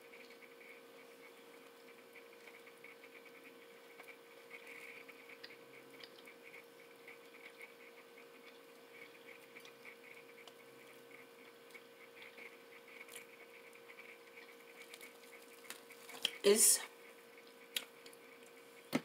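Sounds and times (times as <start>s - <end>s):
steady low hum: 0.0s - 19.0s
crunchy chewing: 1.5s - 16.4s.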